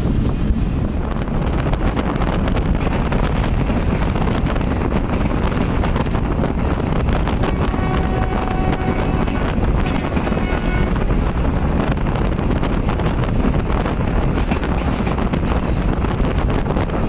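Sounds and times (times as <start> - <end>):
train wheels rumbling on track: 0.0 - 17.0
wind rushing over microphone: 0.0 - 17.0.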